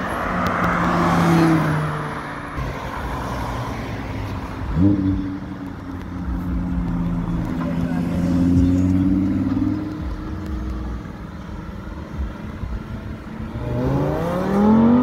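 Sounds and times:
engine revving: 13.4s - 15.0s.

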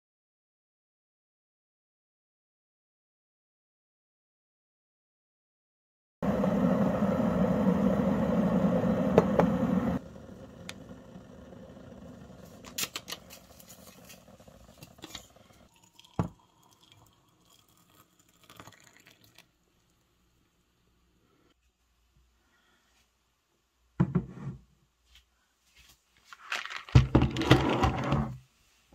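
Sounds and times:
electric kettle heating water: 6.2s - 20.6s
water poured into a mug: 13.4s - 20.0s
knock: 24.0s - 24.5s.

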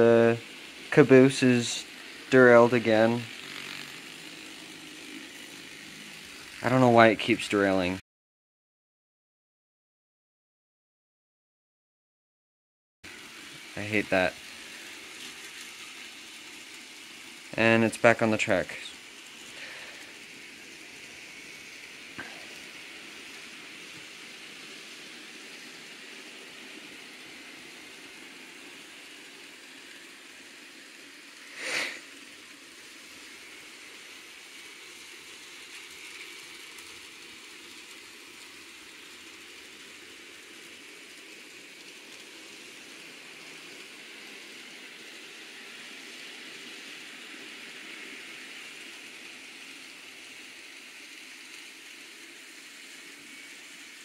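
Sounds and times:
model train motor whirring: 0.0s - 8.0s, 13.1s - 54.0s
brief rush of noise: 31.5s - 32.1s.

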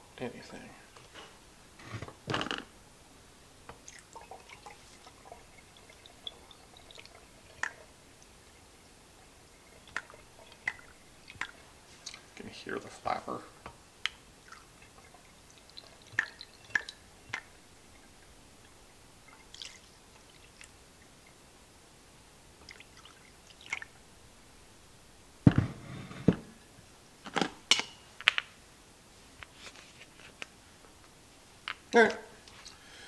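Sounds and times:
water dripping and trickling: 3.6s - 21.5s, 22.5s - 24.1s.

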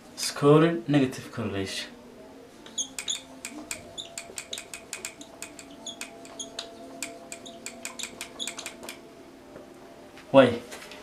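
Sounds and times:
marker squeaking on whiteboard: 2.7s - 9.0s.

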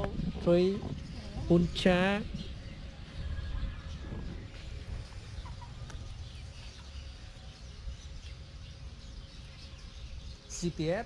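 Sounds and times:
chickens clucking: 0.0s - 7.4s
low rumble: 0.0s - 9.1s.

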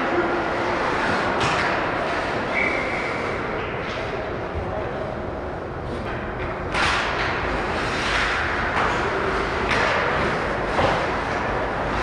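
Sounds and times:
low rink rumble: 0.0s - 12.0s
skate blades scraping ice: 6.8s - 12.0s.

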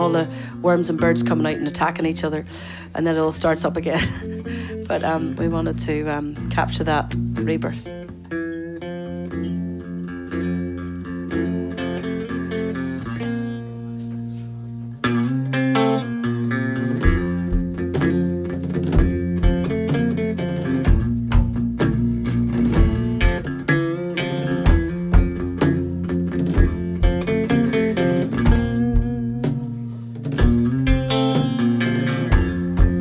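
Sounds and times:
electric guitar playing: 0.0s - 33.0s
steady bass drum beat: 16.9s - 33.0s.

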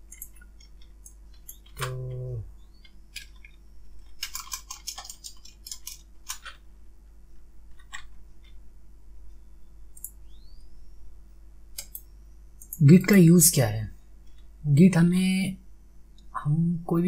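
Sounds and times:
low electrical hum: 0.0s - 17.0s
computer keyboard taps: 4.2s - 6.6s.

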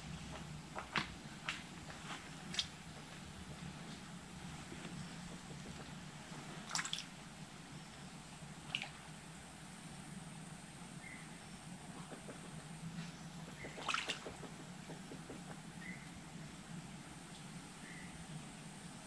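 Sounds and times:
steady low hum: 0.0s - 19.0s
sharp clicks or splashes: 6.6s - 7.1s, 13.7s - 14.5s.

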